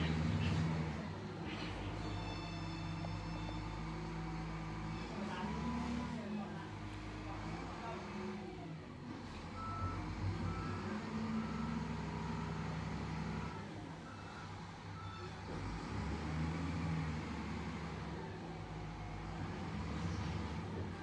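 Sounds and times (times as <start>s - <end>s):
diesel engine running: 0.0s - 21.0s
reversing alarm beeping: 1.9s - 6.4s, 13.4s - 15.4s.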